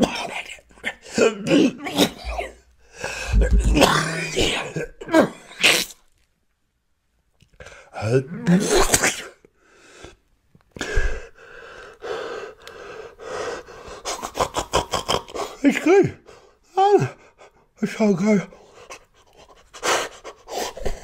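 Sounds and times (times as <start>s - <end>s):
man panting breaths: 2.3s - 3.5s, 10.8s - 14.3s.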